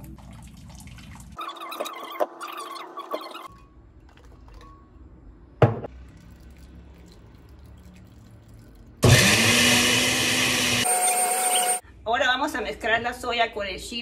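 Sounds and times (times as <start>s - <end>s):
blender motor running: 9.0s - 11.8s.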